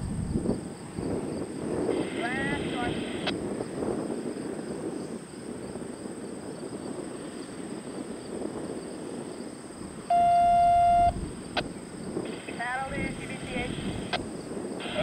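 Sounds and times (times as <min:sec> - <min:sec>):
low background rumble: 0:09.9 - 0:15.0
electronic beep: 0:10.1 - 0:11.2.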